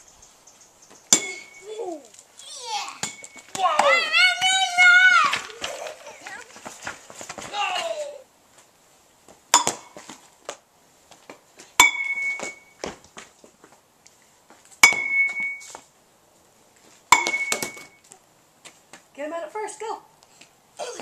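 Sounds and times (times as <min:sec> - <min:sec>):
metal bat striking ball: 0:01.1 - 0:01.6, 0:03.0 - 0:04.0, 0:09.5 - 0:10.0, 0:11.8 - 0:12.7, 0:14.8 - 0:15.6, 0:17.1 - 0:18.0.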